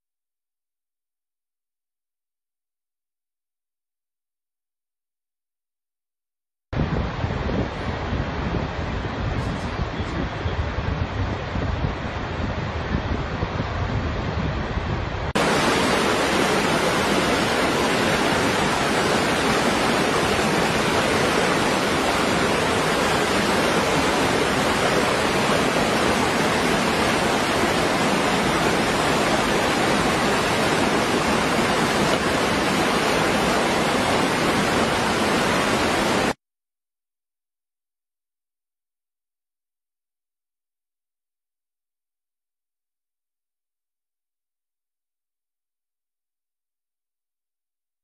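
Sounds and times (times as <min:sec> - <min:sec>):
waterfall rushing: 0:15.4 - 0:36.4.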